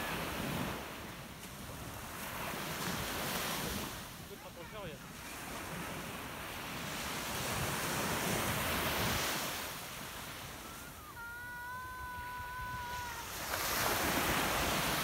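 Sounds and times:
small waves washing onto shore: 0:00.0 - 0:15.0
wind on microphone: 0:06.8 - 0:15.0
steady high tone: 0:10.7 - 0:14.0.

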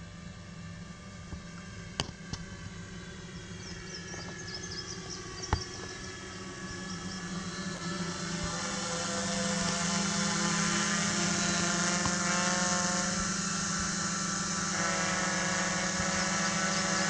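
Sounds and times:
drone propellers buzzing: 0:00.0 - 0:17.0.

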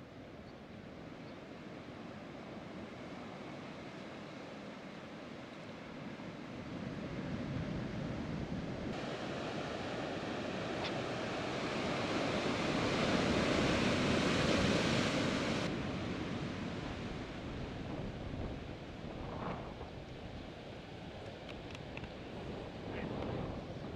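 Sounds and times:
sea surf breaking on rocks: 0:08.9 - 0:19.8.

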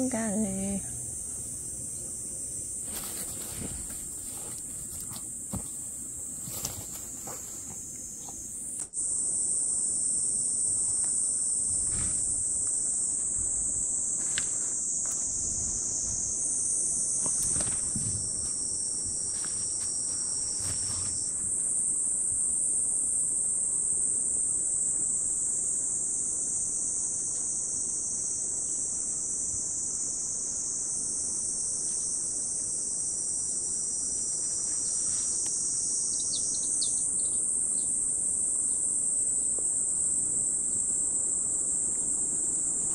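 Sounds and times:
insects shrilling: 0:33.7 - 0:42.9.

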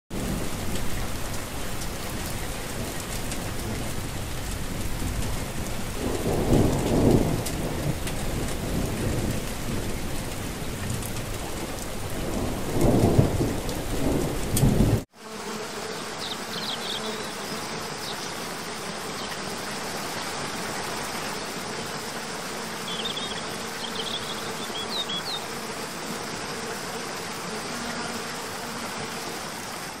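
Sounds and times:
heavy rain: 0:00.1 - 0:15.2, 0:16.0 - 0:30.0
low rolls of thunder: 0:00.2 - 0:15.0.

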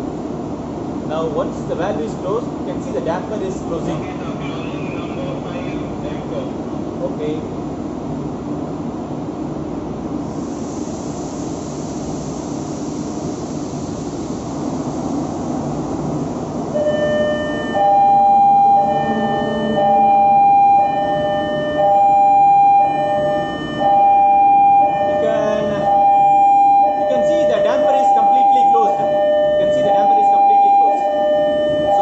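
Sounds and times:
engine-room machinery noise: 0:00.0 - 0:32.0
electronic two-tone alarm: 0:16.7 - 0:32.0.

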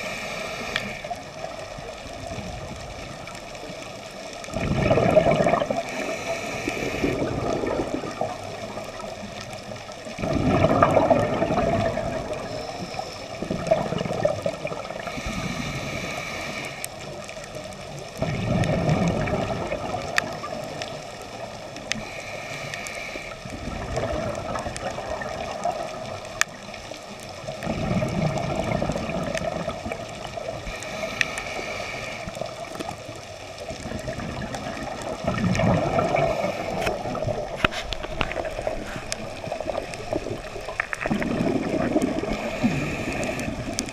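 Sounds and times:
regulator hissing inhales: 0:00.0 - 0:01.1, 0:05.8 - 0:07.3, 0:15.0 - 0:16.9, 0:21.9 - 0:23.4, 0:30.7 - 0:32.5, 0:36.2 - 0:37.0, 0:42.3 - 0:43.8
bubbling exhales underwater: 0:04.5 - 0:09.2, 0:10.0 - 0:15.7, 0:18.2 - 0:21.0, 0:23.5 - 0:26.3, 0:27.5 - 0:30.7, 0:33.6 - 0:43.9.

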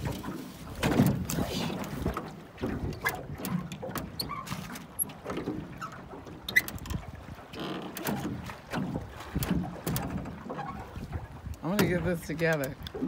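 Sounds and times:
water sloshing: 0:00.0 - 0:13.0
oar knocking on metal boat: 0:05.2 - 0:12.7.

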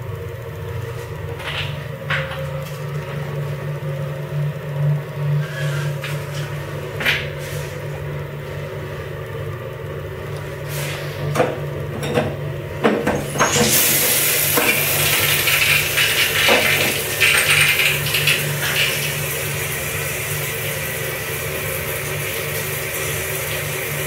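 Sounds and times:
shower water spraying: 0:13.2 - 0:24.0.

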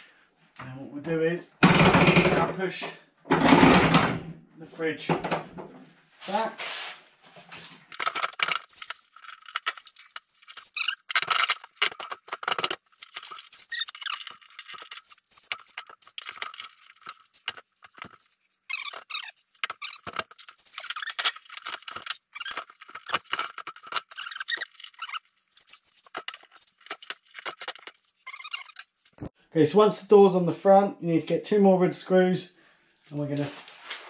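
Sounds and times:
fridge squeaking and scraping: 0:07.8 - 0:29.3.

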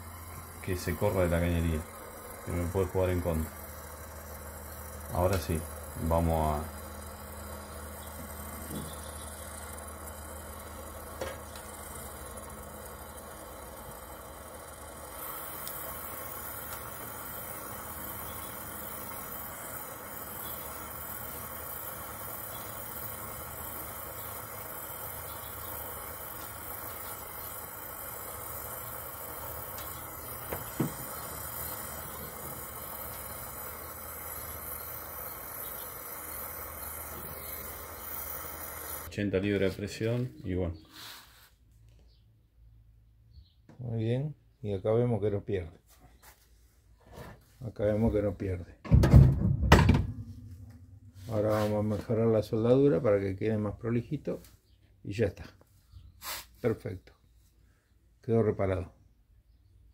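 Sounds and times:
torch flame hissing: 0:00.0 - 0:39.1
low steady hum: 0:49.0 - 0:52.9.

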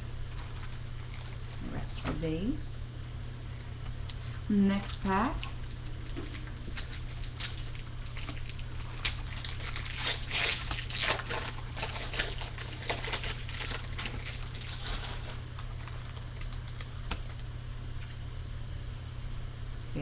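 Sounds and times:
foil wrapper tearing and crinkling: 0:04.9 - 0:17.4.

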